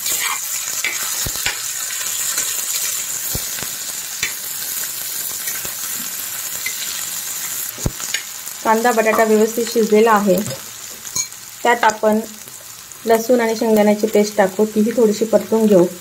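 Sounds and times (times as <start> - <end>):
metal spatula scraping pan: 0.0 - 1.6
onion and potato sizzling in oil: 0.0 - 16.0.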